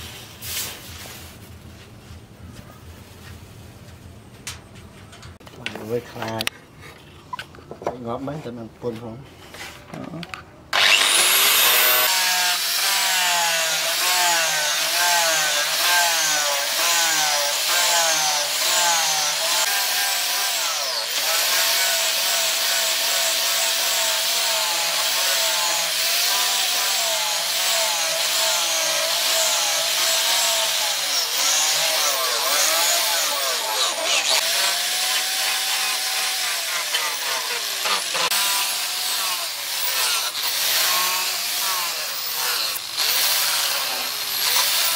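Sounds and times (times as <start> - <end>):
angle grinder grinding steel: 10.8 - 44.9.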